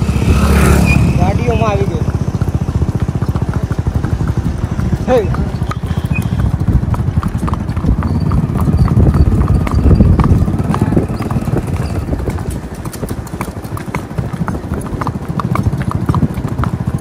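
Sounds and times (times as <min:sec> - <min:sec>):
horse hoofbeats on wet track: 0:00.0 - 0:17.0.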